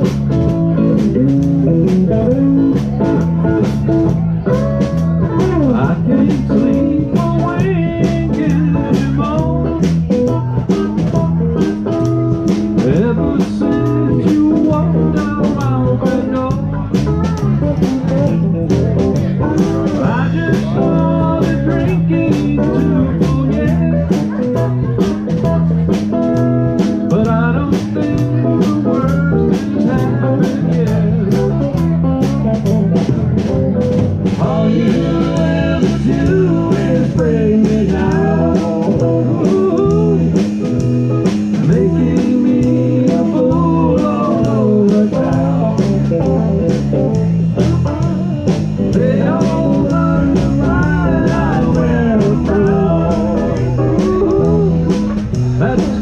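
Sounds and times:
live band playing: 0.0 - 56.0
pitch-bending melody line: 47.8 - 56.0.

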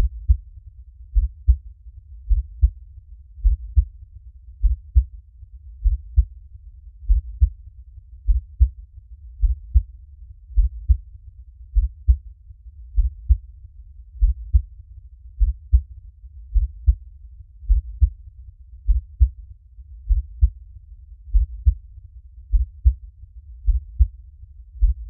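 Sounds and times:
heartbeat thumps: 0.0 - 0.4, 1.1 - 1.6, 2.3 - 2.8, 3.4 - 3.9, 4.6 - 5.1, 5.8 - 6.3, 7.0 - 7.5, 8.2 - 8.7, 9.4 - 9.9, 10.6 - 11.0, 11.8 - 12.2, 13.0 - 13.4, 14.2 - 14.7, 15.4 - 15.9, 16.5 - 17.0, 17.7 - 18.2, 18.9 - 19.4, 20.1 - 20.6, 21.3 - 21.8, 22.5 - 23.0, 23.6 - 24.2, 24.8 - 25.0
faint low rumble: 0.0 - 25.0.

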